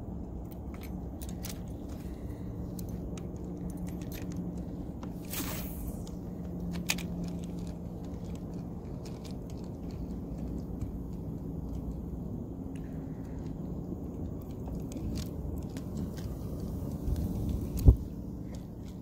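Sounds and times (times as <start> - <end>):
brief hiss: 5.3 - 5.9.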